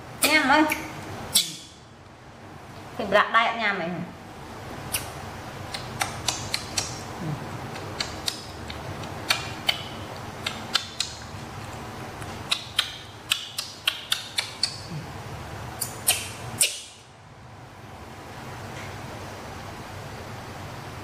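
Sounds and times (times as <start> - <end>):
monkey chewing and lip-smacking: 5.7 - 14.9.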